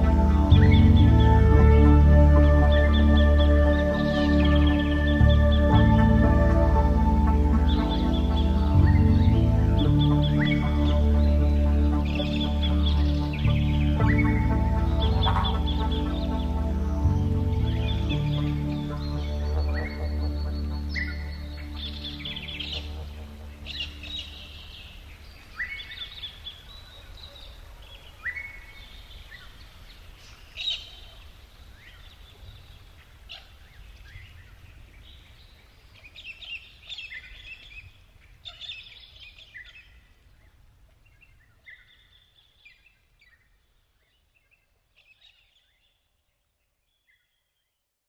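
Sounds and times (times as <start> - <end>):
birds chirping and calling: 2.4 - 40.2.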